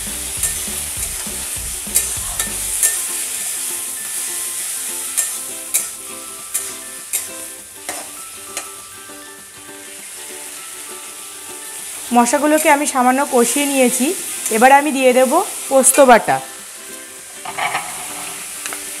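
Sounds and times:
food sizzling in oil: 0.0 - 19.0
spatula scraping metal pan: 17.4 - 18.5.

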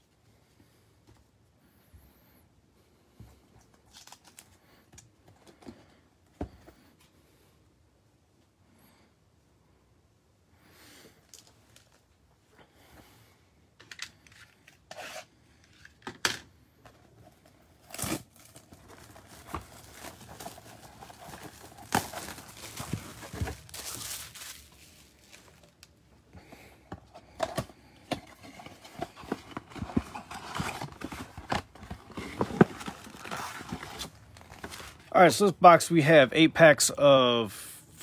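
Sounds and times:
card packs handled: 16.8 - 35.5
shrink wrap crackling: 17.9 - 26.0.

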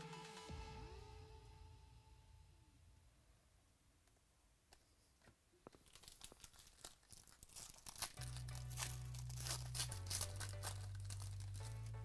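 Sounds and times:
low background music: 0.0 - 2.8, 7.5 - 12.0
foil wrapper tearing and crinkling: 5.7 - 12.0.

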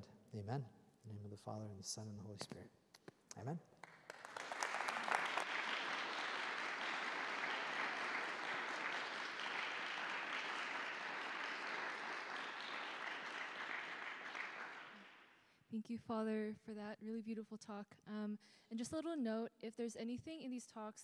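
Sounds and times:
audience applauding: 3.8 - 15.3.

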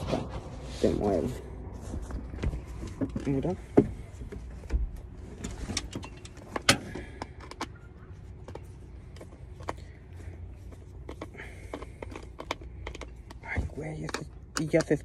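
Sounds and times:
low steady rumble: 0.0 - 15.0
screwdriver clicking and scraping: 5.7 - 15.0.

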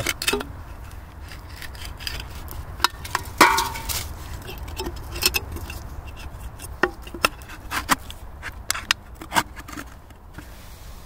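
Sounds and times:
firecrackers knocking into tin cans: 2.8 - 4.1.

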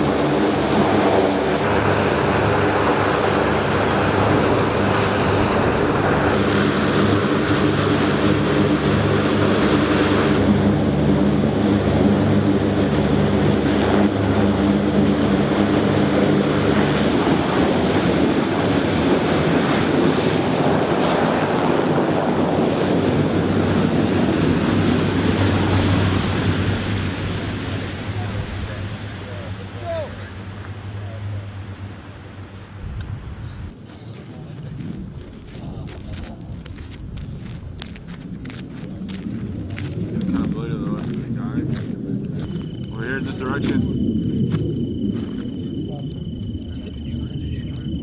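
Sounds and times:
rotor wash rushing: 0.0 - 33.8
helicopter rotors and turbines droning: 0.0 - 48.0.

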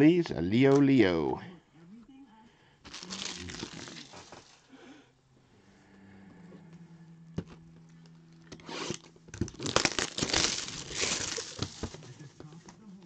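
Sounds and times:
low steady hum: 0.0 - 13.0
plastic wrap crinkling: 2.9 - 4.6, 8.9 - 12.3.

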